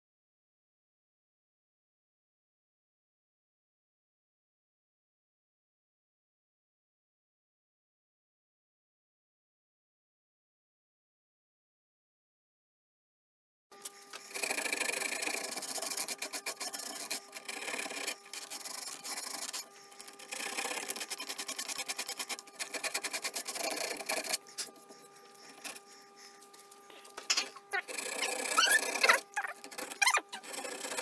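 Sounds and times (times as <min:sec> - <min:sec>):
sandpaper rubbing on wood: 0:14.0 - 0:31.0.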